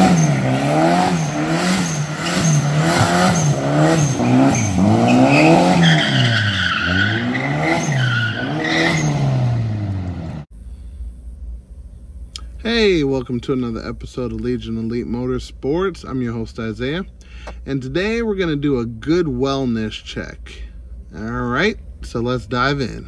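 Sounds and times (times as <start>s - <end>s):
tyres squealing: 0.0s - 9.3s
car engine revving: 0.0s - 10.5s.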